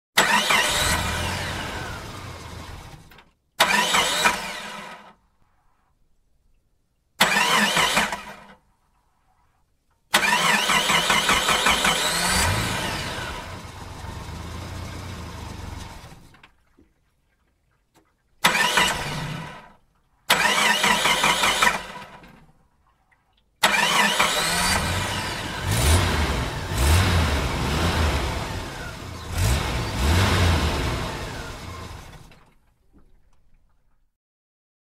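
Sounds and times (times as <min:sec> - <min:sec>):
car engine revving: 0:00.2 - 0:03.0, 0:10.2 - 0:16.2, 0:23.8 - 0:32.3
car engine starting: 0:00.2 - 0:05.2, 0:07.2 - 0:08.6, 0:10.1 - 0:16.5, 0:18.4 - 0:19.7, 0:20.3 - 0:22.4, 0:23.6 - 0:32.7.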